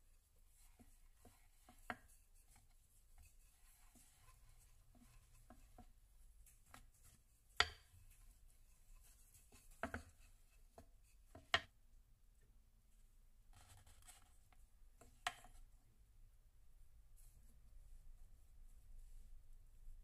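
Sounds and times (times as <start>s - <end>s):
rolling pin rolling dough: 0.5s - 8.2s, 8.8s - 11.7s.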